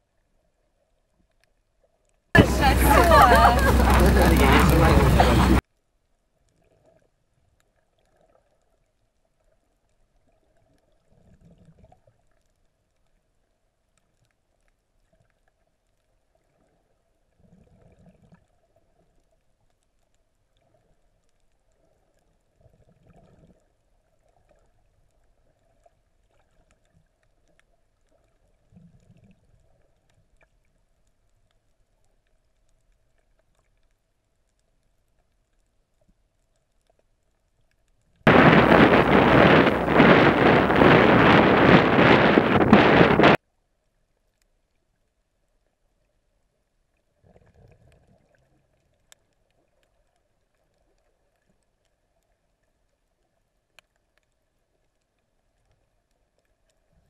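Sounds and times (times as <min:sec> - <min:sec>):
muffled underwater surges: 0:02.4 - 0:05.6, 0:38.3 - 0:43.4.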